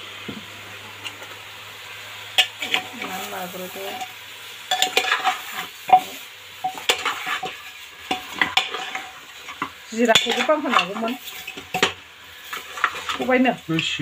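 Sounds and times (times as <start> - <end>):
spoon clinking and scraping pot: 4.7 - 13.4.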